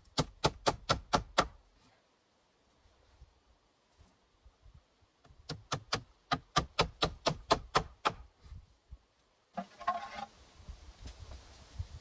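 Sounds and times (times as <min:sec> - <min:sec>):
scraping rustle: 0:09.6 - 0:11.8.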